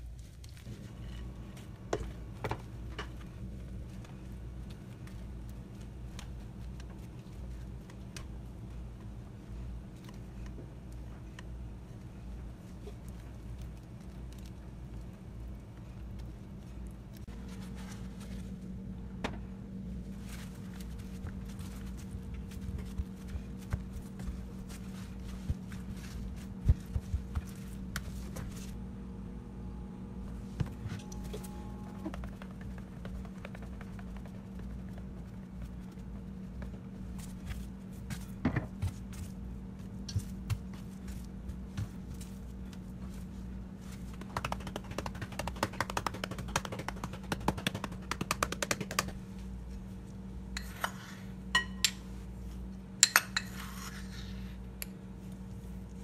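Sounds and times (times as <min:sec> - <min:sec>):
low hum: 0:00.0 - 0:56.0
paper towels rubbing on fish: 0:31.9 - 0:38.4.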